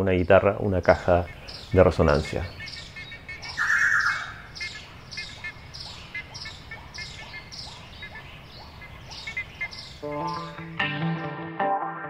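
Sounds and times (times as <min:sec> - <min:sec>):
bird chirping: 0:00.0 - 0:10.9
guitar music: 0:10.0 - 0:12.0.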